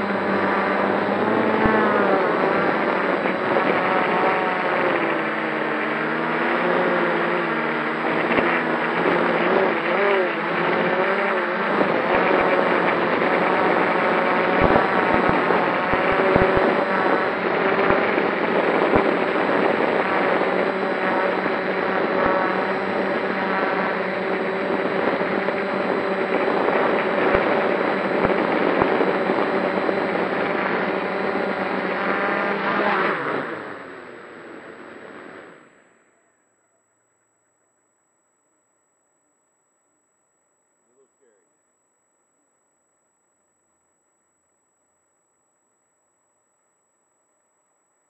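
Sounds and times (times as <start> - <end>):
drone motors whining: 0.0 - 37.3.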